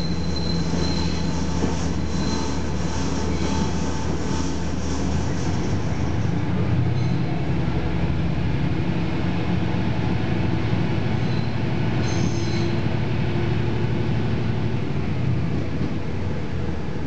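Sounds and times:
brief high squeal: 0:00.0 - 0:04.6, 0:07.0 - 0:07.3, 0:11.2 - 0:12.8
train wheels on rails: 0:00.0 - 0:16.9.

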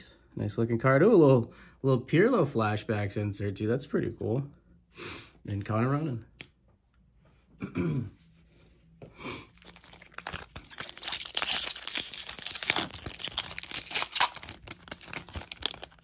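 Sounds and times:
foil wrapper tearing and crinkling: 0:09.5 - 0:16.0.

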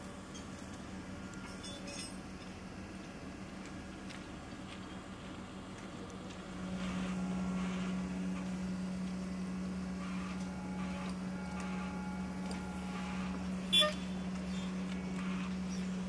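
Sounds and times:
light metallic clinks: 0:00.0 - 0:02.6
diesel engines and hydraulics humming: 0:00.0 - 0:16.0.

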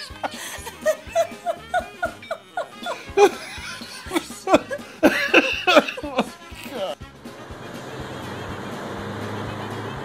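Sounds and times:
person laughing in short bursts: 0:00.0 - 0:07.0
background music with low beat: 0:00.0 - 0:10.0.

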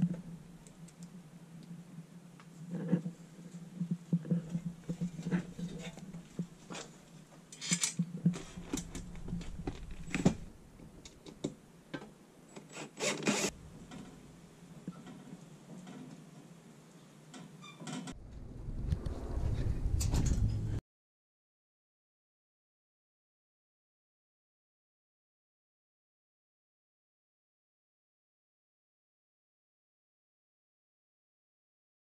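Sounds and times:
metal clicks knocks and scrapes: 0:03.8 - 0:10.4
steady low rumble: 0:08.2 - 0:11.2, 0:13.5 - 0:14.8, 0:18.2 - 0:20.8
cordless drill driving screws: 0:12.6 - 0:13.5.

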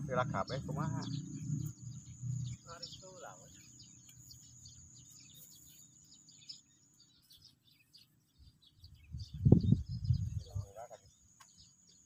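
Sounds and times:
high insect whine: 0:00.0 - 0:07.1
bird chirps: 0:00.0 - 0:12.0.

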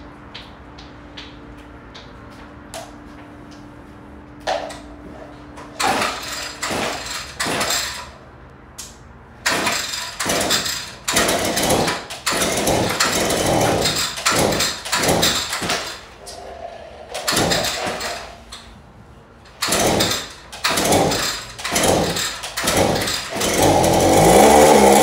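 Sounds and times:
string trimmer starter rope yanks: 0:09.5 - 0:16.0, 0:17.1 - 0:18.3, 0:19.5 - 0:25.0.

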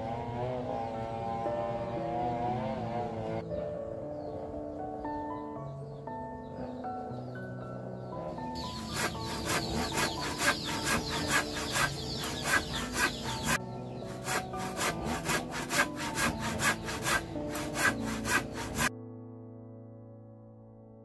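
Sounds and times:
soft background music: 0:00.0 - 0:21.0
handsaw cutting wooden plank: 0:08.6 - 0:18.9.

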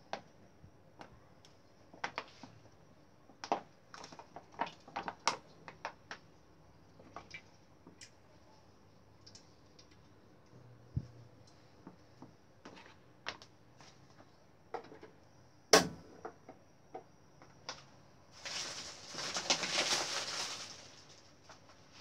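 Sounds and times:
rustling hiss: 0:18.3 - 0:22.0.

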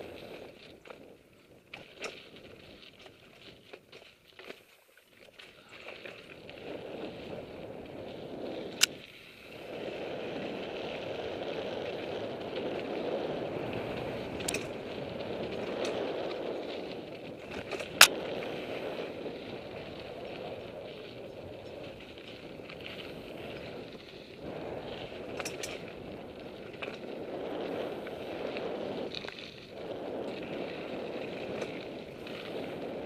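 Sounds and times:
bike tyres rolling on dirt: 0:00.0 - 0:33.0.

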